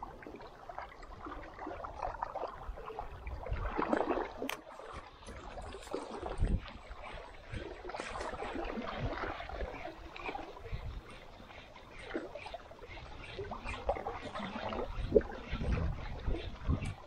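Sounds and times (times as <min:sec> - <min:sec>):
sea water lapping: 0:00.0 - 0:17.0
wind buffeting microphone: 0:01.8 - 0:11.2, 0:13.0 - 0:17.0.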